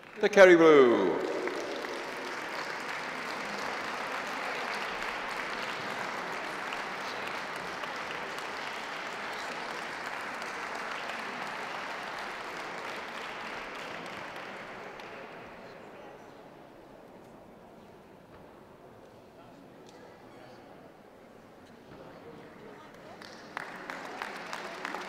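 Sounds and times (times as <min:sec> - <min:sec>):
audience applauding: 0:00.0 - 0:15.4, 0:23.1 - 0:25.0.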